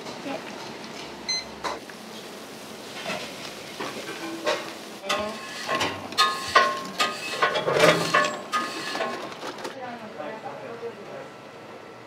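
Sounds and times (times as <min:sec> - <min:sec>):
water boiling in a pot: 0:00.0 - 0:09.0.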